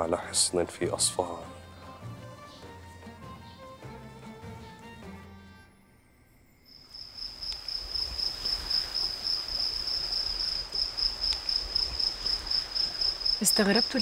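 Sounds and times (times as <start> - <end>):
crickets trilling: 6.3 - 14.0.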